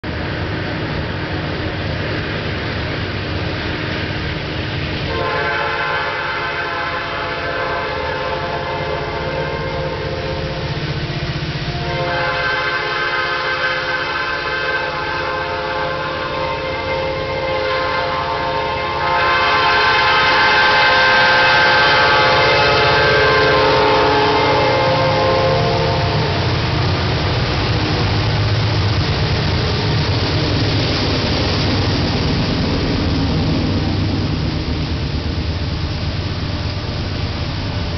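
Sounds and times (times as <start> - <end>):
locomotive engine rumble: 0.0 - 37.9
locomotive air horn blasts: 5.1 - 26.7.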